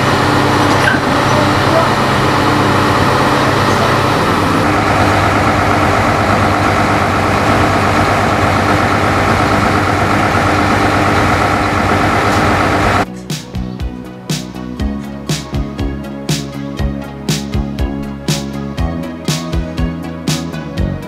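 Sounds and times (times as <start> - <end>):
heavy diesel engine running: 0.0 - 13.2.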